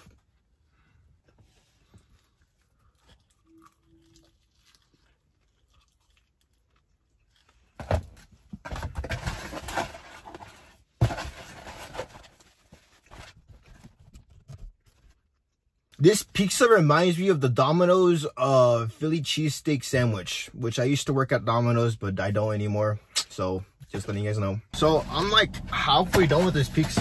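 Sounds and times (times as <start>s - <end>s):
person chewing food: 2.0s - 7.8s.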